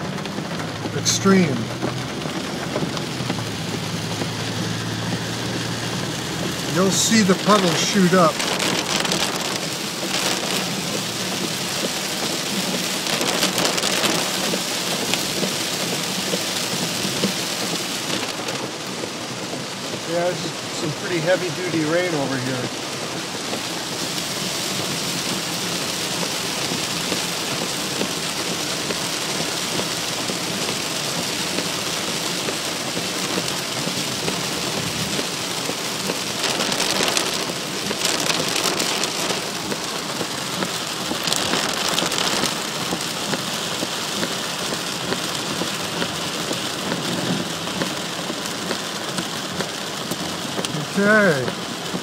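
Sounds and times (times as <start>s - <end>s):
heavy rain on car roof: 0.0s - 52.0s.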